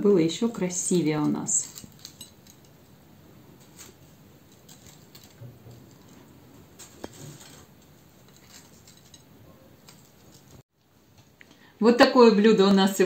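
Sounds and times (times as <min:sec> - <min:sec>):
potato chips rustling and clicking: 0:01.2 - 0:02.9, 0:03.6 - 0:10.6.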